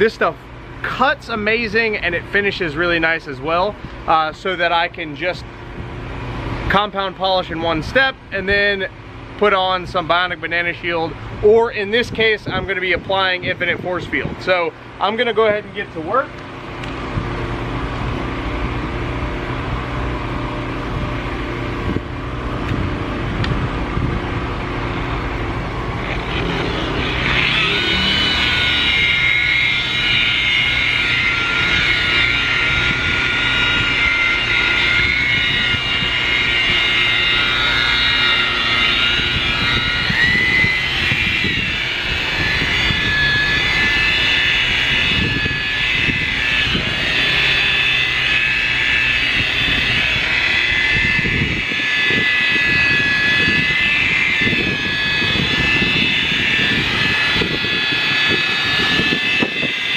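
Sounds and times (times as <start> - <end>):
electric polisher whining: 15.8 - 59.9.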